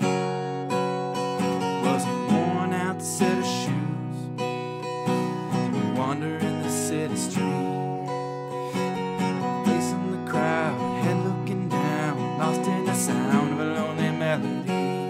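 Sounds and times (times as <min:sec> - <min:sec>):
song with strummed acoustic guitar: 0:00.0 - 0:15.0.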